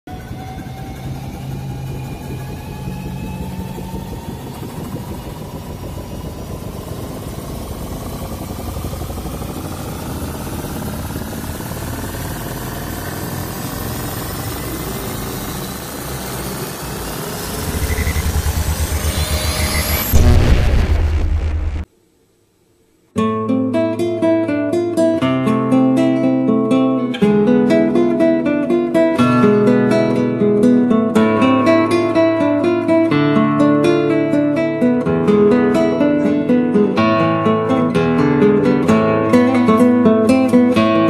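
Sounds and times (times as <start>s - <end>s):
fast pulsing throb: 0.1s - 21.9s
rumbling engine-like drone: 0.1s - 21.9s
whine rising in pitch: 0.1s - 21.9s.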